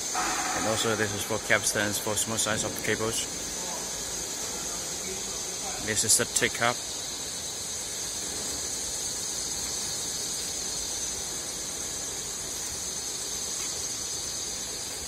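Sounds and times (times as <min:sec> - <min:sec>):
machinery high-pitched whine: 0:00.0 - 0:06.4
machinery hiss: 0:00.0 - 0:15.0.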